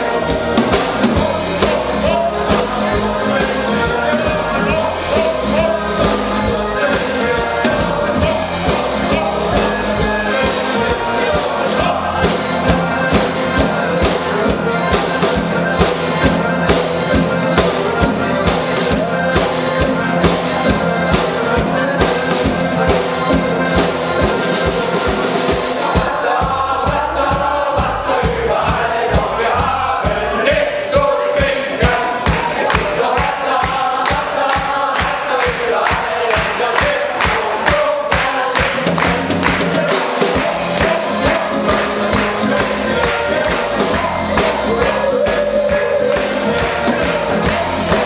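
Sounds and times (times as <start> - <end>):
accordion: 0.0 - 48.0
choir singing: 0.0 - 48.0
steady beat: 0.0 - 48.0
acoustic guitar: 38.8 - 48.0.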